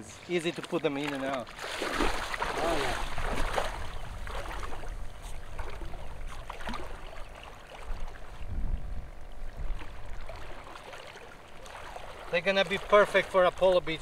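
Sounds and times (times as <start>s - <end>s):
water sloshing around waders: 0.0s - 14.0s
wind rumble on microphone: 2.1s - 7.1s, 7.8s - 10.6s.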